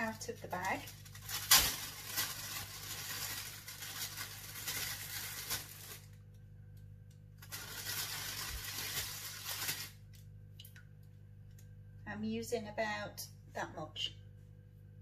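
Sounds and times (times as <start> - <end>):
plastic bag rustling and crinkling: 0.0 - 6.3, 7.4 - 10.3.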